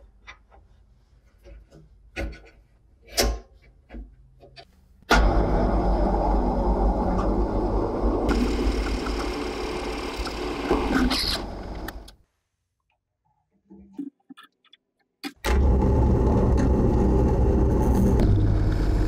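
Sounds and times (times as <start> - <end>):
drill press running: 5.1 - 12.1.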